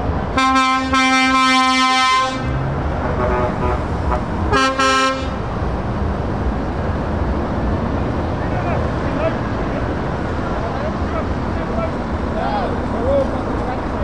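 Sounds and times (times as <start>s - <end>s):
trucks driving past: 0.0s - 14.0s
vehicle horn blasts: 0.4s - 5.4s.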